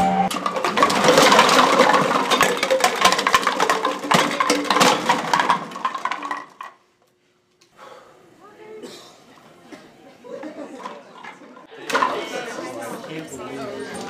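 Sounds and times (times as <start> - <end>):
cans and bottles clinking in locker: 0.3 - 6.8.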